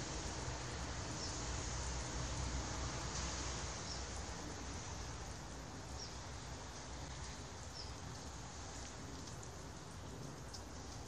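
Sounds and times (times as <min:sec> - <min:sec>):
steady outdoor hiss: 0:00.0 - 0:11.0
light ticks: 0:10.2 - 0:11.0.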